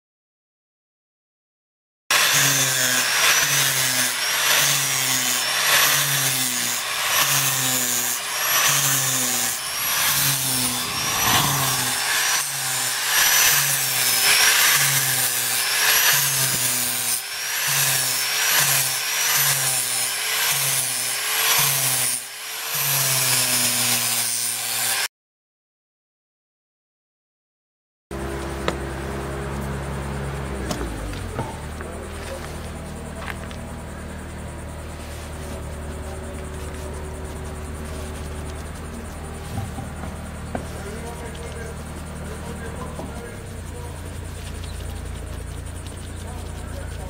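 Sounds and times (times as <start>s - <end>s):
electric grinder whining: 2.1s - 25.1s.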